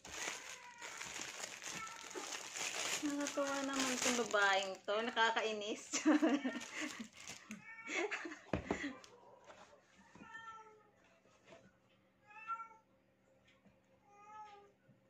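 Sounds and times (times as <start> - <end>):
cat meowing: 0.1 - 2.6.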